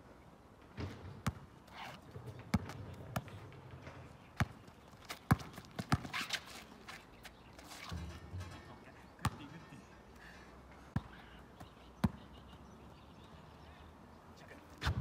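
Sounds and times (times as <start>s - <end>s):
basketball bouncing on asphalt: 0.6s - 6.6s, 10.9s - 12.8s.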